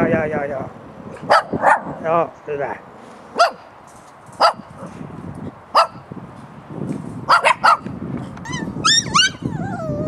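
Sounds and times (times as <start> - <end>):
puppies yapping: 8.4 - 10.0.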